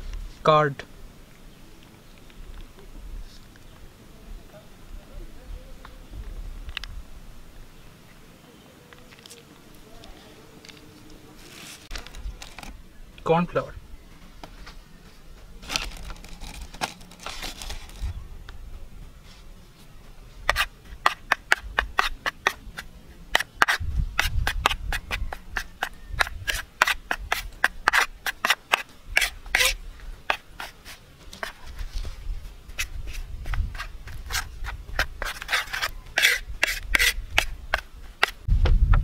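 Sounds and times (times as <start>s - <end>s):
knife scraping a ceramic plate: 20.5s - 31.6s, 32.7s - 38.4s.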